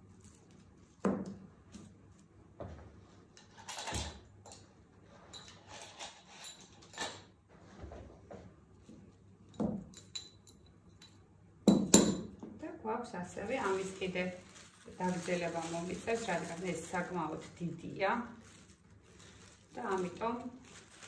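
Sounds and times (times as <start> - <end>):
paper rustling: 13.4 - 21.0.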